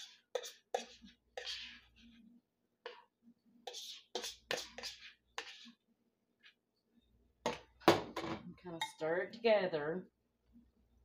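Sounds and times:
fork scraping ceramic bowl: 0:00.0 - 0:05.8.

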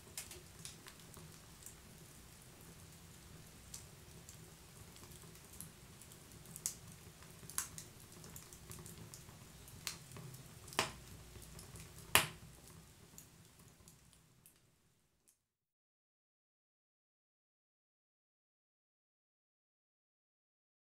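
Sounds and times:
wood fire crackling: 0:00.0 - 0:14.7.

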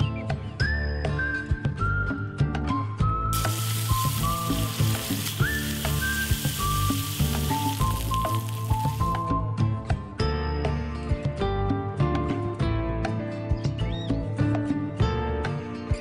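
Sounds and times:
steaks sizzling in a frying pan: 0:03.4 - 0:09.2.

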